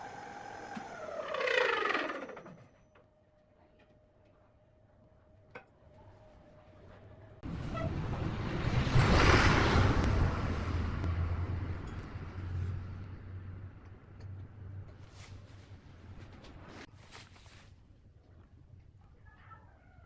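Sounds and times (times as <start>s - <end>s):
lathe tool cutting wood: 0.0s - 2.6s
lathe motor hum: 0.0s - 2.7s.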